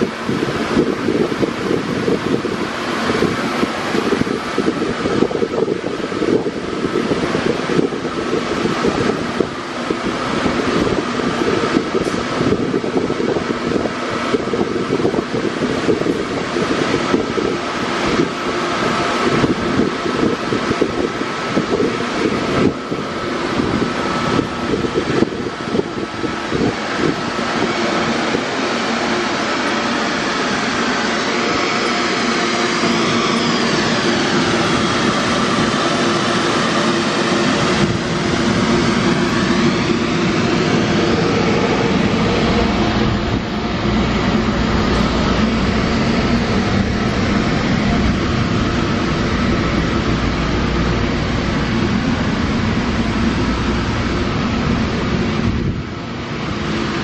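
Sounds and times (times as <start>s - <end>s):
lathe mechanical drone: 0.0s - 57.0s
deep hum: 22.2s - 57.0s.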